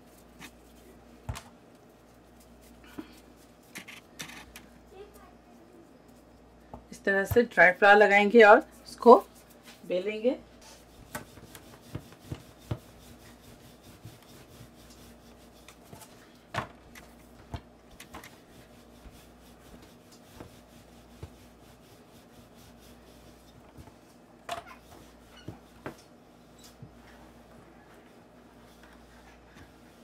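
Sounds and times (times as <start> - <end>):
rolling pin rubbing on dough: 10.6 - 16.2, 17.0 - 30.0.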